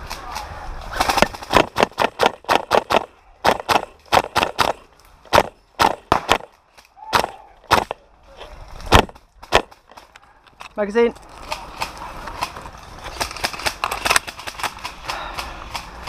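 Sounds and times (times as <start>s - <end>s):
airsoft rifle shots: 0.9s - 8.0s, 8.9s - 10.1s.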